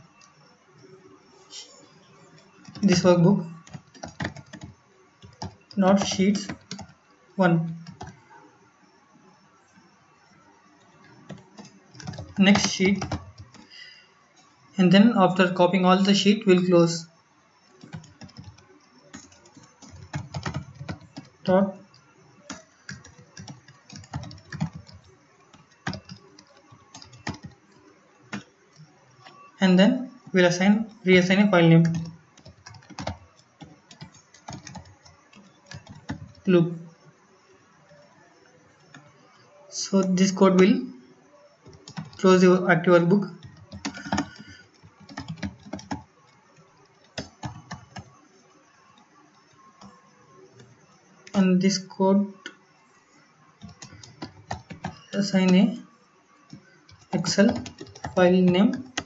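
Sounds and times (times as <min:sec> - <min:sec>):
typing on computer keyboard: 0:02.2 - 0:08.2, 0:10.8 - 0:13.8, 0:17.8 - 0:29.5, 0:31.8 - 0:36.5, 0:41.6 - 0:42.4, 0:43.2 - 0:48.2, 0:53.6 - 0:55.8, 0:56.5 - 0:59.0.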